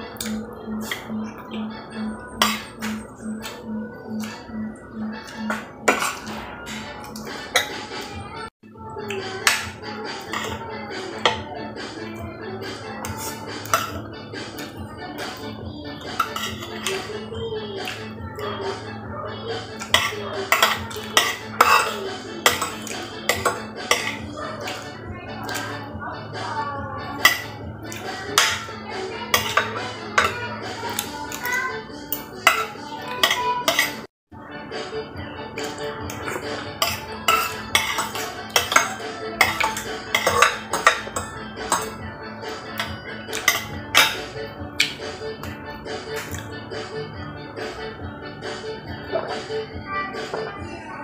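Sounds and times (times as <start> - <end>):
background music: 0.0 - 51.0
cutlery clinking on a plate: 2.4 - 3.0, 5.5 - 6.8, 9.4 - 10.6, 16.2 - 17.0, 19.8 - 24.8, 29.3 - 30.4, 32.1 - 34.1, 36.2 - 42.0, 42.8 - 44.9.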